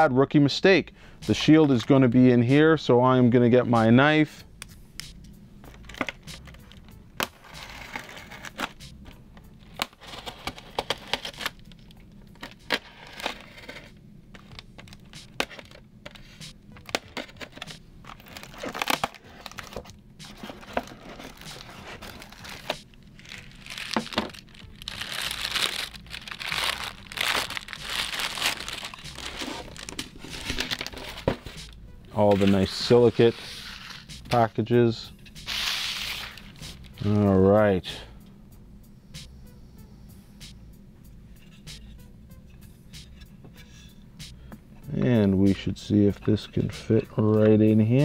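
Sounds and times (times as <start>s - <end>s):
foam crinkling: 18.1s - 33.6s.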